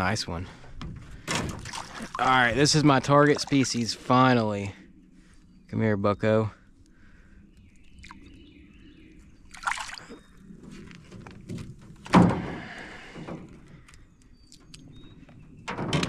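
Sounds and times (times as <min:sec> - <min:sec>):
hollow thunk against boat: 0:00.6 - 0:02.2, 0:11.1 - 0:13.6
water splashing against boat: 0:01.3 - 0:04.2, 0:09.5 - 0:10.3.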